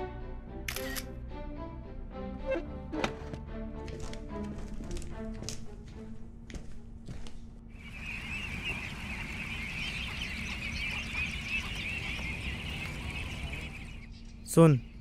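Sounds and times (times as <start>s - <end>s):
flock of ducks calling: 7.8s - 14.1s.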